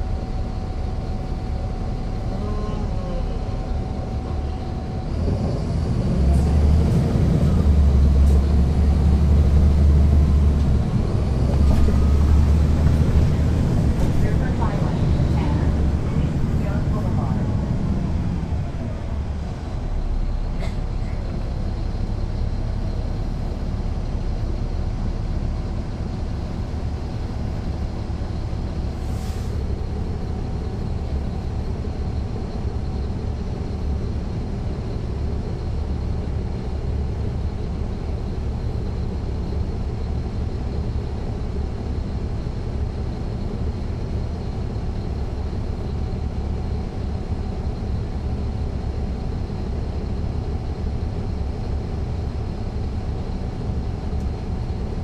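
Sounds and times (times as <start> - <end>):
bus engine rumbling: 0.0 - 55.0
brief air hiss: 29.0 - 29.6.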